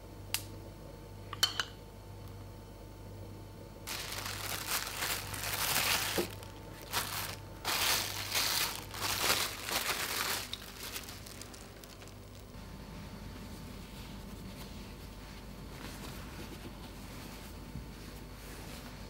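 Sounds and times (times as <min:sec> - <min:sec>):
plastic cling film crinkling: 0:03.9 - 0:12.6.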